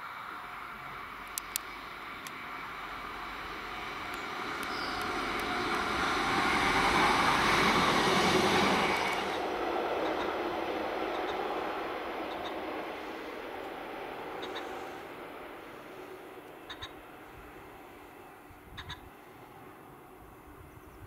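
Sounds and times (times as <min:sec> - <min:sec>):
diesel train passing: 0:00.0 - 0:21.0.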